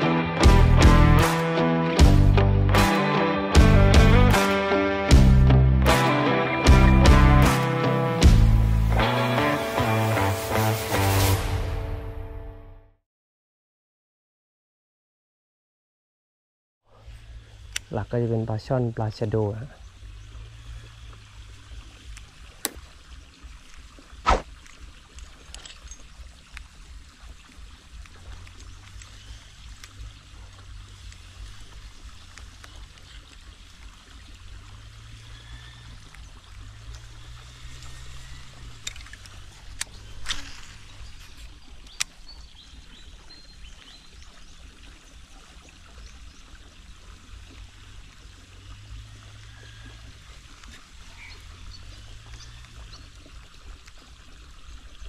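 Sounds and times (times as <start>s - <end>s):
water pouring from a pipe: 17.1s - 55.0s.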